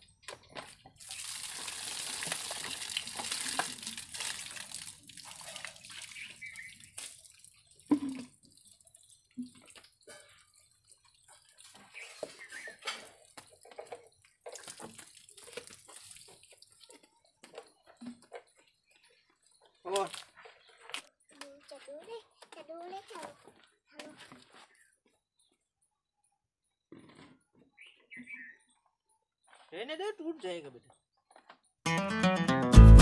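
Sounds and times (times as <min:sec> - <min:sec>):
water gushing onto ground: 0:00.8 - 0:17.8, 0:19.8 - 0:20.4.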